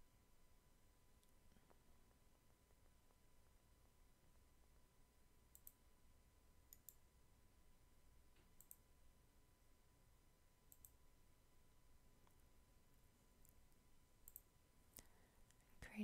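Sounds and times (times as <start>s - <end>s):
computer mouse clicks: 5.5s - 5.8s, 6.7s - 7.1s, 8.3s - 8.9s, 10.7s - 11.0s, 14.2s - 15.6s.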